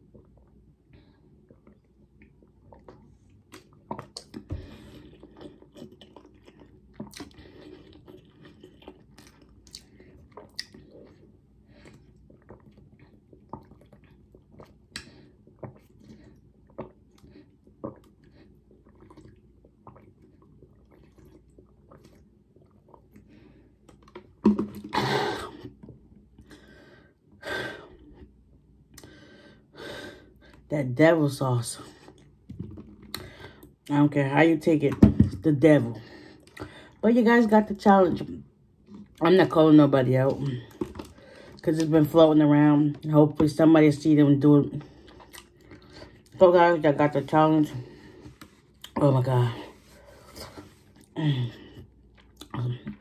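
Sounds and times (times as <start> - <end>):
person gulping water: 0.0 - 26.6, 32.1 - 33.9, 40.3 - 41.9, 44.6 - 46.4, 50.4 - 53.0.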